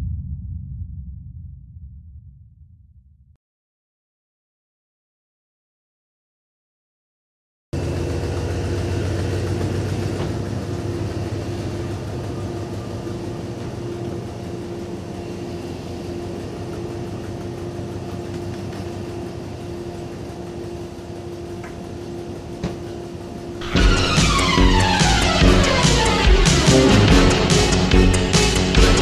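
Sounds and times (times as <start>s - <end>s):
truck engine running: 7.8s - 29.0s.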